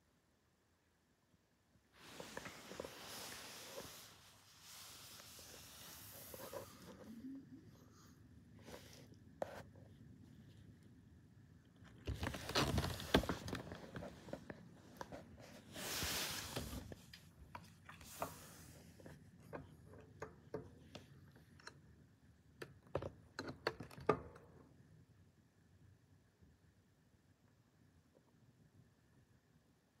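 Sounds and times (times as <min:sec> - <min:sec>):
cats scuffling on wooden floor: 0:02.0 - 0:07.0, 0:12.0 - 0:19.2.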